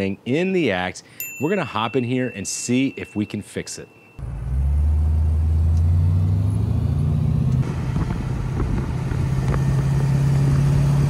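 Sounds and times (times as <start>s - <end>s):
car engine drone: 4.2s - 11.0s
road noise: 4.2s - 11.0s.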